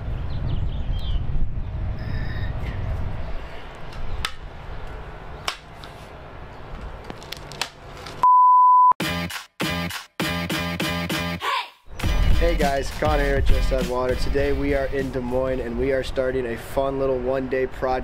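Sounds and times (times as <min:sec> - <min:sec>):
censor bleep: 0:08.2 - 0:09.0
choppy intro music: 0:09.0 - 0:11.4, 0:12.0 - 0:15.2.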